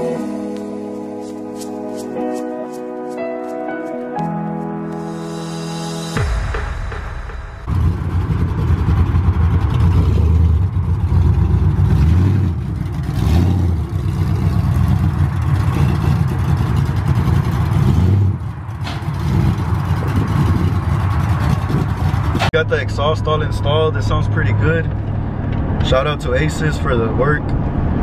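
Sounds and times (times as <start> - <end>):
truck engine revving: 7.7 - 25.1.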